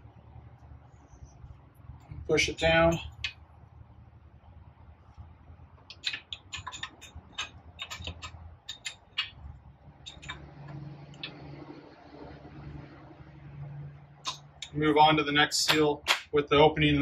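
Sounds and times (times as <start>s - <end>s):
faint steady hum: 0.0s - 17.0s
light clicks and taps: 5.8s - 11.4s.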